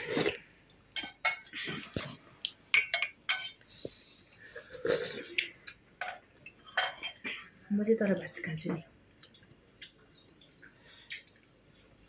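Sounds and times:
spoons and dishes clinking: 1.0 - 1.9, 2.7 - 3.6.

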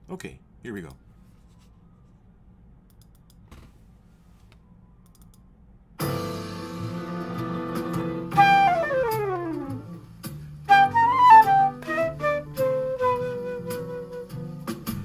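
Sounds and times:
room hum: 0.0 - 6.0
jazz piano trio backing: 6.0 - 15.0
flute playing bluesy phrases: 8.3 - 10.0, 10.7 - 15.0.

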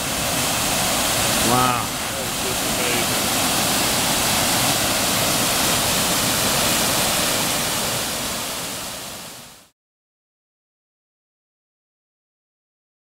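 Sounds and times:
waterfall rushing: 0.0 - 9.7.

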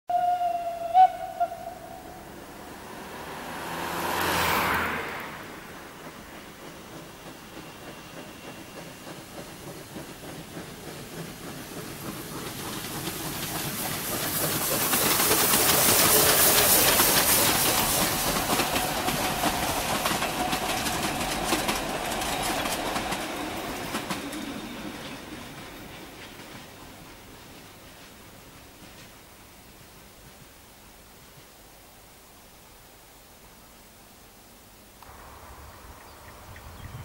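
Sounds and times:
steam locomotive passing: 0.1 - 32.8, 34.6 - 37.0
wheels clicking over rail joints: 2.2 - 31.5
steam hissing: 5.1 - 29.2.

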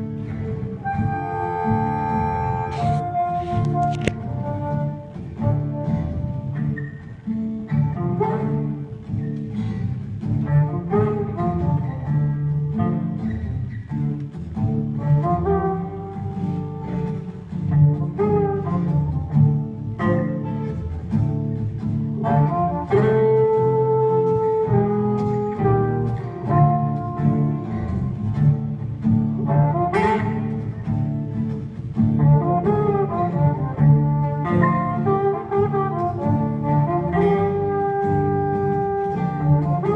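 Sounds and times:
strummed acoustic guitars: 0.0 - 39.9
harmonica playing lead: 0.5 - 6.2.

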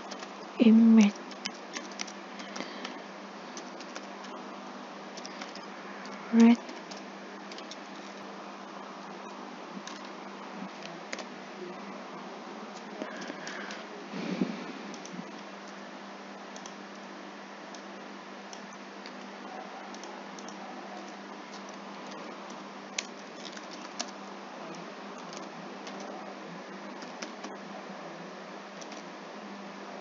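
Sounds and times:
background hiss: 0.0 - 23.4.

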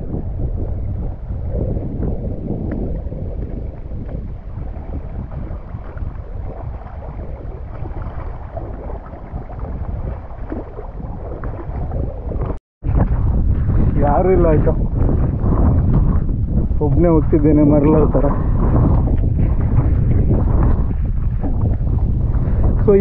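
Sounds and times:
wind buffeting microphone: 0.0 - 23.0
water rushing: 2.7 - 12.6.

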